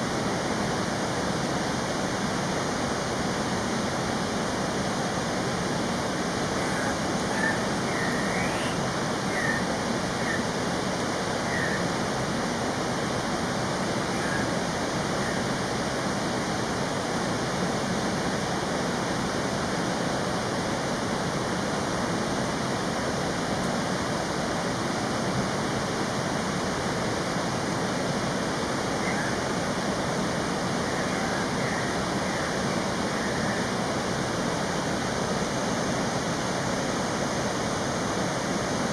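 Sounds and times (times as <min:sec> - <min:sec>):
running water rushing: 0:00.0 - 0:38.9
faint high bird chirps: 0:06.6 - 0:09.6, 0:11.5 - 0:11.8.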